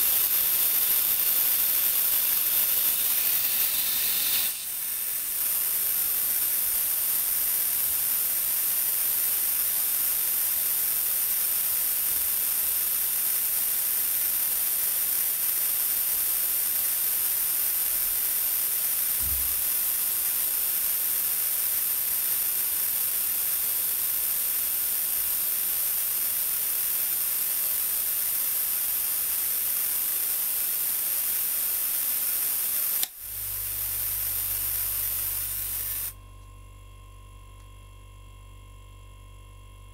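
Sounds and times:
compressed air hissing: 0:00.0 - 0:10.0, 0:18.2 - 0:36.2
compressor hum: 0:33.0 - 0:39.9.

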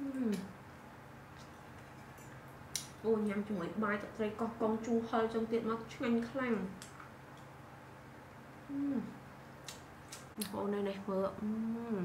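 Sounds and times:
woman humming with mouth full: 0:00.0 - 0:00.5, 0:08.7 - 0:09.2.

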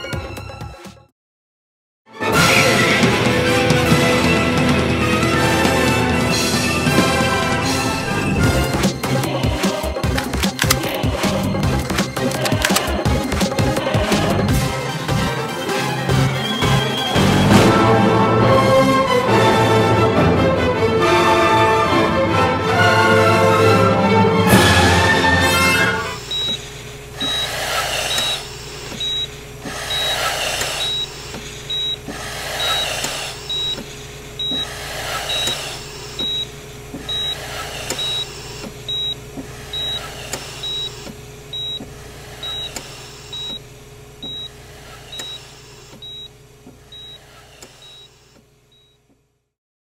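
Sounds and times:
heart monitor beeping: 0:08.4 - 0:14.1, 0:26.0 - 0:49.2
steady electrical hum: 0:26.0 - 0:49.5
ventilator whoosh: 0:27.2 - 0:31.0, 0:31.7 - 0:36.2.

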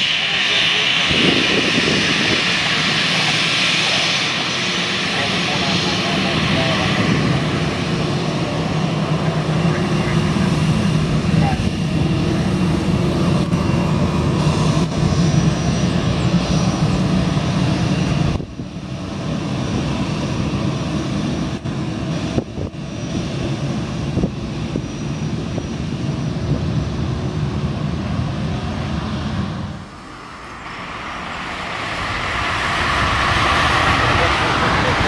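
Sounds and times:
jet engines of taxiing airliner: 0:00.0 - 0:35.0.

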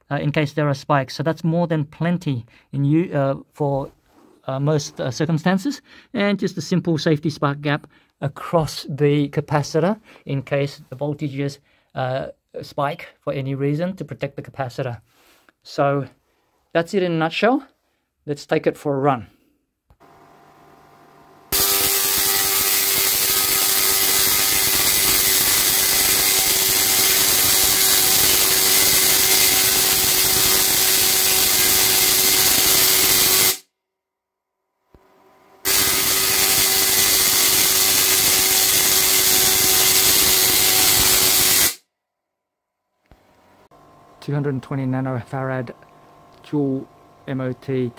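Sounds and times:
tesla coil buzzing crackle: 0:21.5 - 0:33.6, 0:35.6 - 0:41.8.

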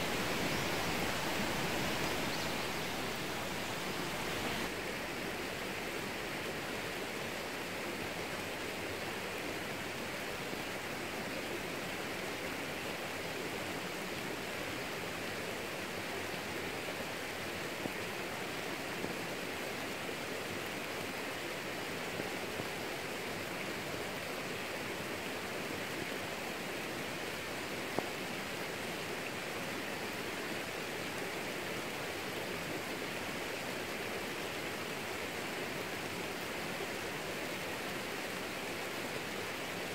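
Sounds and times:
rain falling on plants: 0:00.0 - 0:06.9.

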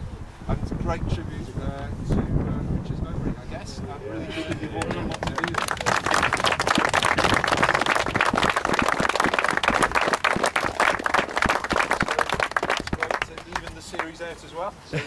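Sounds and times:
group clapping: 0:04.3 - 0:14.2.

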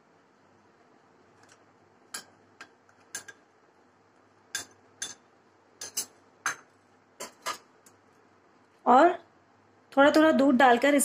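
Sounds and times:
metal spoon clinking on bowl: 0:02.1 - 0:02.4, 0:03.1 - 0:03.4, 0:04.5 - 0:07.6.

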